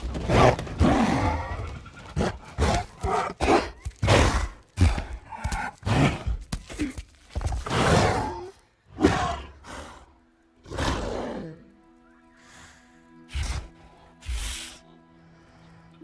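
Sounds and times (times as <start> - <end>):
deep growls and roars: 0.0 - 6.4, 7.6 - 11.7.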